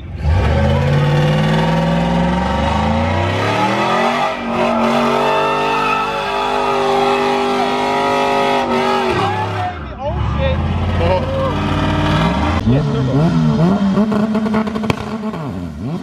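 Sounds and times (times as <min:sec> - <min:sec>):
truck engine revving high: 0:00.0 - 0:16.0.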